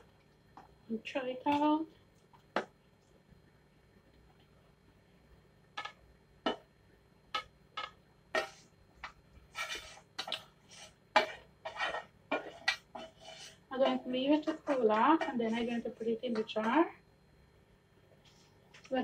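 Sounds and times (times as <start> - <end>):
spatula scraping frying pan: 8.3 - 15.9.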